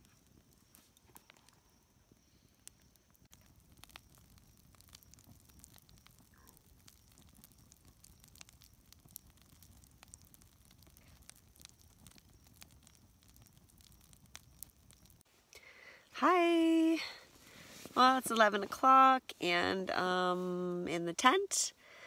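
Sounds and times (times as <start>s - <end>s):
flames rushing: 0.0s - 15.2s
campfire crackling and popping: 0.0s - 20.8s.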